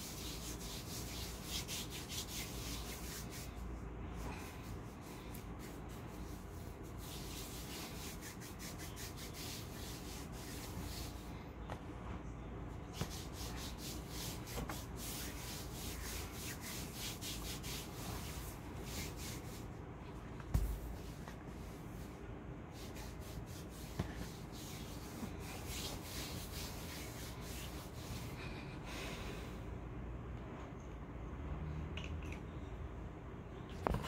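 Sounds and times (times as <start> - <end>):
hand rubbing powder on skin: 0.0 - 11.4, 12.9 - 19.8, 20.5 - 28.4.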